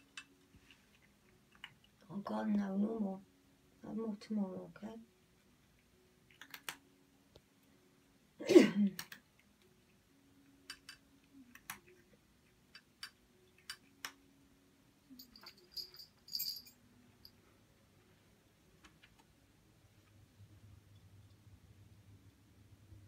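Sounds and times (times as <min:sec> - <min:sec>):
cat claws clicking on tiles: 0:06.3 - 0:06.8.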